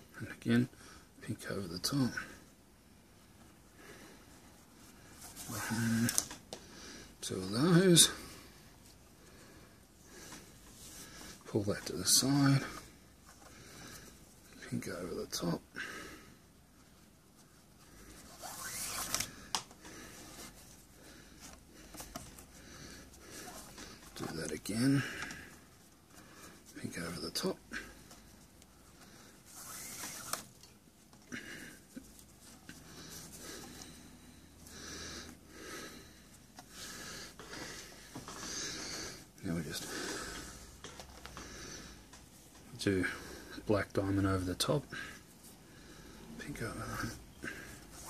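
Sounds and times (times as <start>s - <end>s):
person breathing: 2.1s - 7.2s, 8.0s - 11.5s, 12.5s - 14.6s, 15.7s - 26.7s, 27.6s - 30.3s, 31.2s - 42.2s, 43.0s - 43.7s, 44.9s - 48.0s
cord rubbing: 17.4s - 27.1s, 28.0s - 34.8s
cord sliding and rasping: 18.1s - 24.6s, 29.0s - 30.8s.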